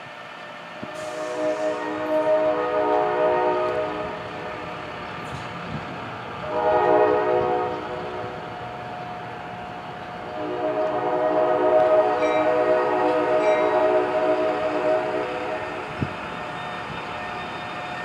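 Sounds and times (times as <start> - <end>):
train air horn blasts: 0.8 - 4.9, 6.4 - 8.6, 10.2 - 16.2.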